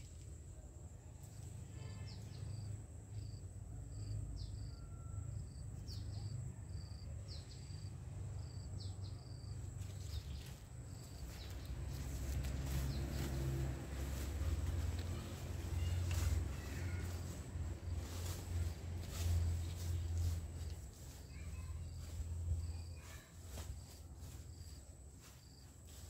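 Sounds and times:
footsteps through leafy ground cover: 0:09.6 - 0:26.0.

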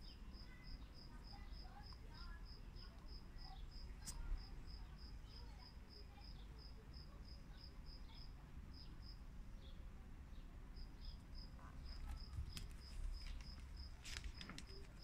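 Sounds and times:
cricket chirping: 0:10.8 - 0:15.0.

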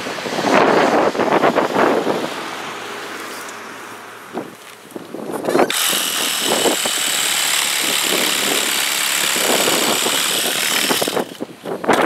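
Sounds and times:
power tool motor whine: 0:05.4 - 0:12.0
rough irregular rasping: 0:05.4 - 0:12.0.

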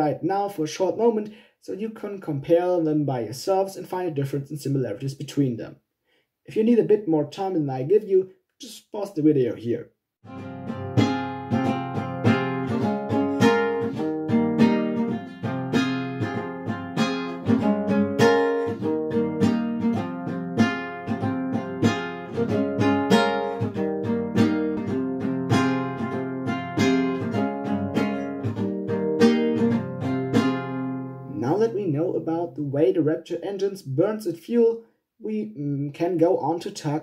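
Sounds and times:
plucked guitar: 0:10.2 - 0:32.9.

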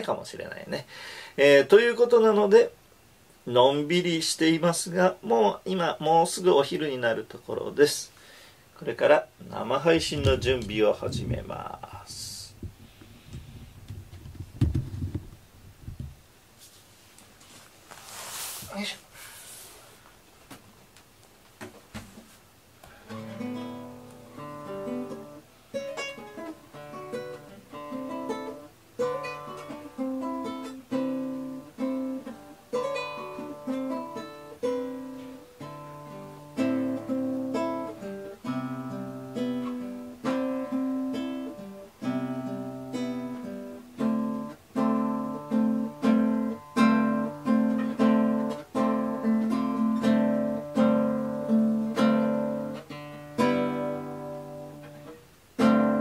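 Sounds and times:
acoustic guitar tune: 0:03.5 - 0:16.0, 0:21.6 - 0:56.0.

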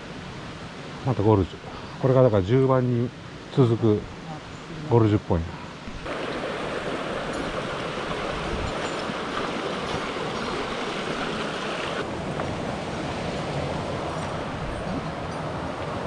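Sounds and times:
stream water rushing: 0:05.8 - 0:16.0.

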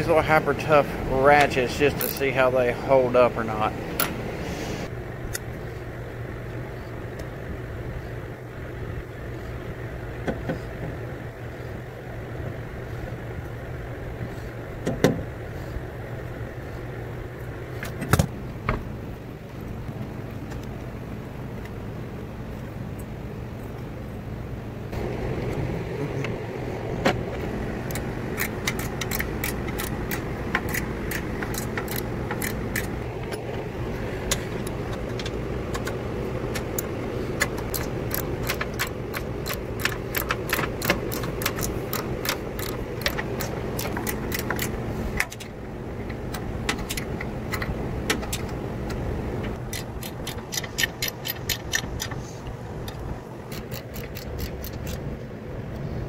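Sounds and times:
steady background hum: 0:00.0 - 0:56.0
ratchet wrench clicking: 0:02.0 - 0:02.3, 0:27.8 - 0:33.0, 0:34.5 - 0:45.5, 0:49.6 - 0:52.2, 0:52.9 - 0:55.1.

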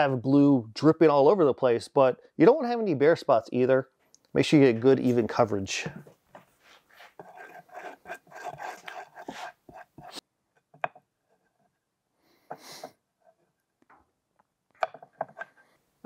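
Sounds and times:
wooden clicks and knocks: 0:10.6 - 0:11.1, 0:13.8 - 0:15.6
wooden strips rubbing and clattering: 0:14.9 - 0:15.7.

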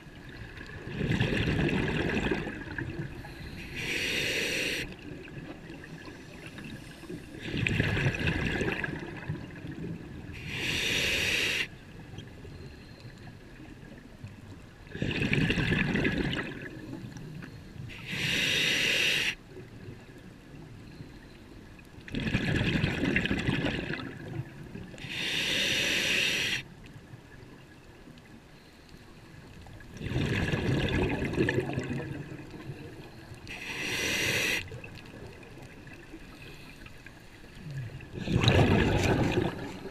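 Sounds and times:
bubbling exhale underwater: 0:00.7 - 0:03.3, 0:07.4 - 0:10.0, 0:14.9 - 0:16.9, 0:22.1 - 0:24.4, 0:30.0 - 0:32.9, 0:37.6 - 0:39.9
regulator inhale hiss: 0:03.2 - 0:05.0, 0:06.0 - 0:07.5, 0:10.4 - 0:11.8, 0:17.4 - 0:19.4, 0:25.0 - 0:26.7, 0:33.3 - 0:34.8.

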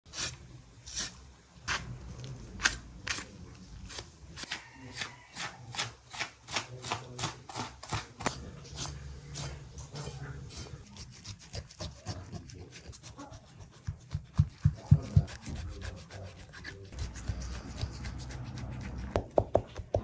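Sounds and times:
knife slicing raw meat: 0:03.9 - 0:19.2.

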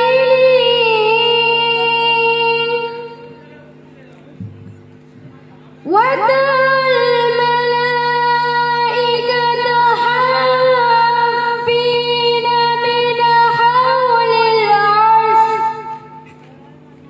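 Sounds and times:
girl chanting into microphone: 0:05.9 - 0:16.1.

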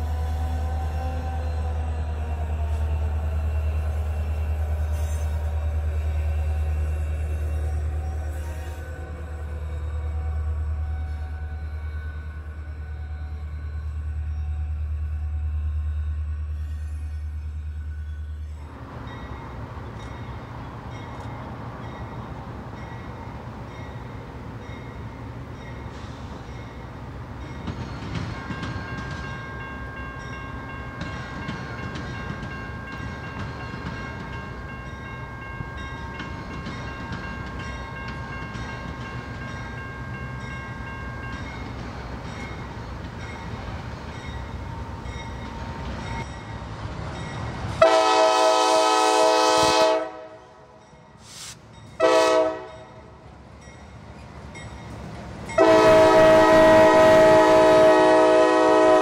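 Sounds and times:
freight train rumbling past: 0:00.0 - 0:59.0
locomotive air horn blasts: 0:47.8 - 0:50.5, 0:52.0 - 0:52.8, 0:55.6 - 0:59.0.

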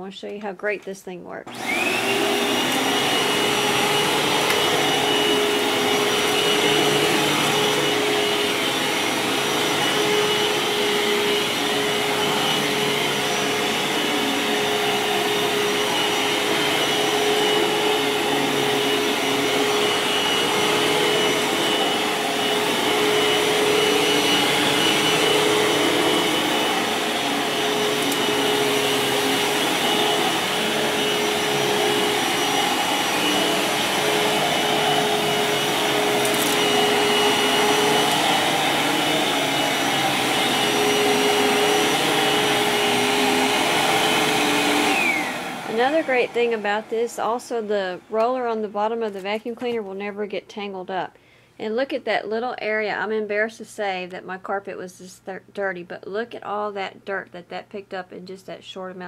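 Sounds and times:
vacuum cleaner running on carpet: 0:01.5 - 0:48.4.

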